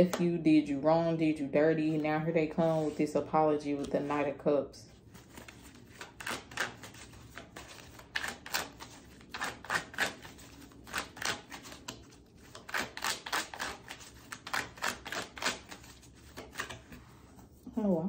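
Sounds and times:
cards being shuffled by hand: 5.0 - 17.9.

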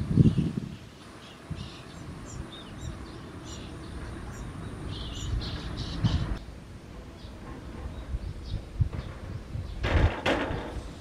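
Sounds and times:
bird fledglings begging chirps: 0.0 - 6.4.

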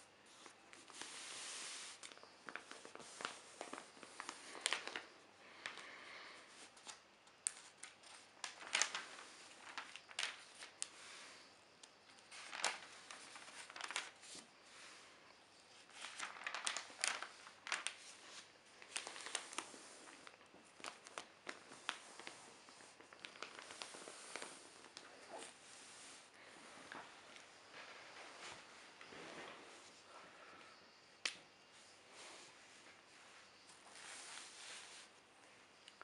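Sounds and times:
newspaper pages rustling: 0.3 - 6.0, 6.6 - 11.4, 12.1 - 15.0, 15.7 - 30.0.

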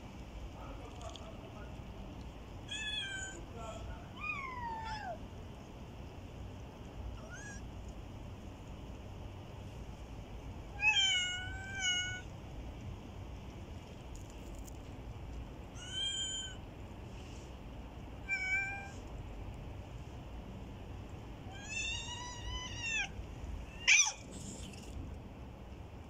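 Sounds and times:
cats meowing: 2.7 - 3.5, 4.2 - 5.2, 7.2 - 7.7, 10.8 - 12.3, 15.8 - 16.6, 18.2 - 19.0, 21.5 - 24.8.

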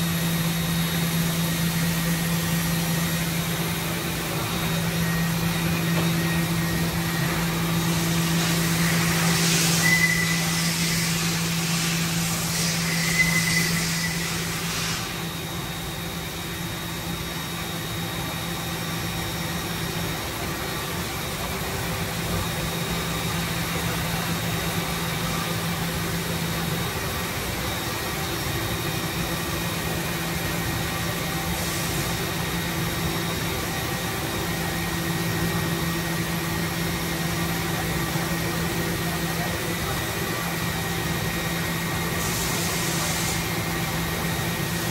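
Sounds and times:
machining center humming: 0.0 - 44.9
hiss with short whistles: 8.2 - 15.2.

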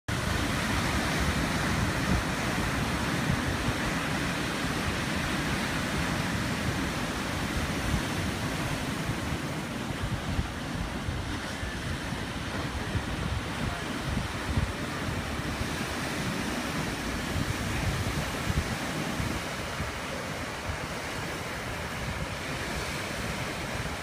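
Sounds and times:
sea surf breaking on rocks: 0.1 - 24.0
wind gusting on microphone: 0.1 - 24.0.

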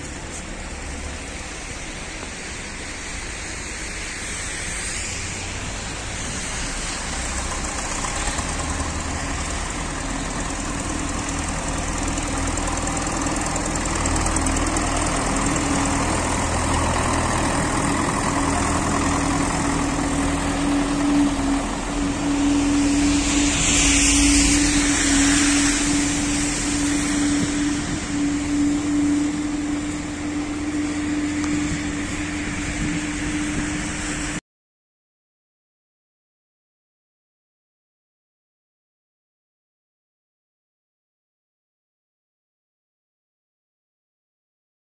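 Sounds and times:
tractor engine droning: 0.0 - 34.4
brief rush of noise: 21.6 - 30.1.

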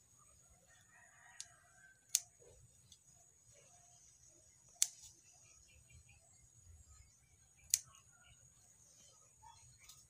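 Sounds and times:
scissors snipping plant shoots: 1.4 - 3.0, 4.6 - 5.2, 7.6 - 8.0.

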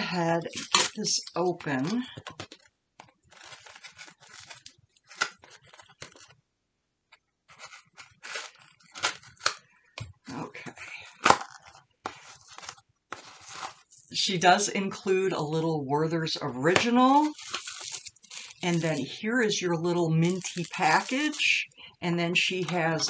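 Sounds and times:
paper envelope rustling and tearing: 0.4 - 6.4, 7.5 - 9.6, 11.2 - 14.6, 16.8 - 23.0.

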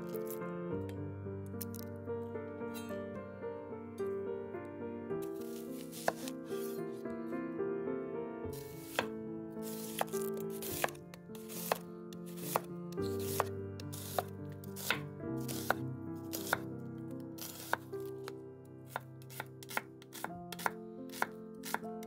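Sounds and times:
soft background music: 0.0 - 22.0
knife slicing onion on board: 5.3 - 6.4, 8.6 - 16.6, 17.4 - 17.8, 18.9 - 21.8.

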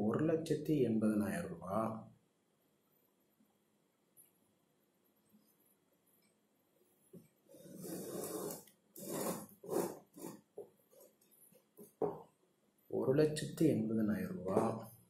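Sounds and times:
marker writing on whiteboard: 7.1 - 12.4.

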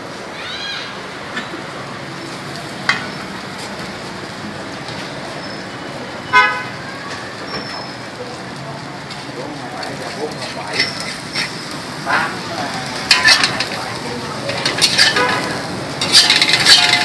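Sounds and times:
street and cooking noise: 0.0 - 17.0
vehicle horn toot: 6.3 - 6.8.

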